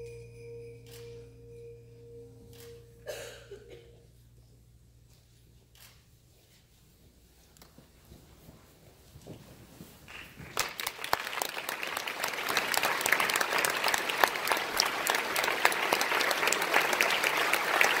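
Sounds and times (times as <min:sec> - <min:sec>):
audience applause: 0:10.1 - 0:18.0.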